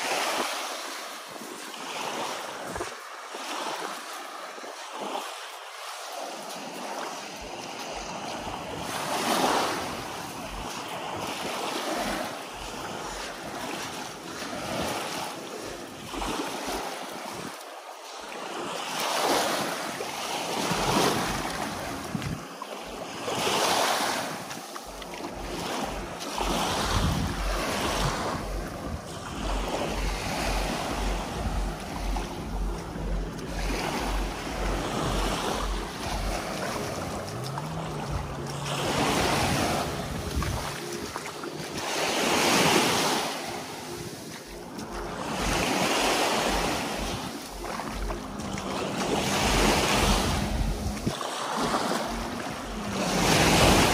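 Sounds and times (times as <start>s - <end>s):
waves on rocky shore: 0.0s - 53.9s
wind rumbling on microphone: 19.4s - 42.9s, 44.5s - 53.9s.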